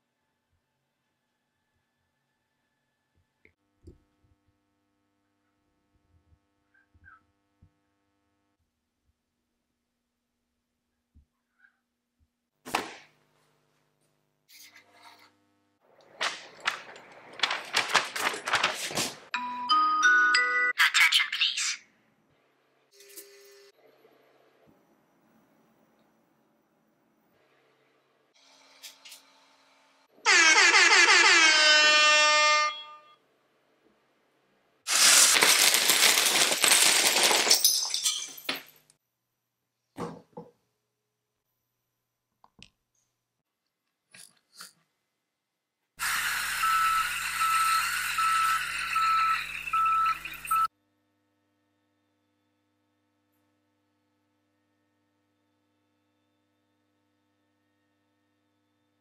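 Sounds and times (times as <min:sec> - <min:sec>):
paper slapping on table: 0:12.7 - 0:13.1, 0:16.1 - 0:19.3
paper rustling: 0:16.1 - 0:19.3, 0:34.9 - 0:37.7
plastic bricks clattering: 0:34.9 - 0:38.7.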